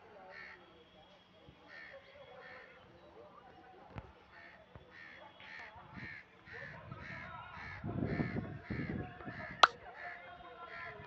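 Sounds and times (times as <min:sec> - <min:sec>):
crow cawing: 0:00.3 - 0:00.6, 0:01.7 - 0:02.7.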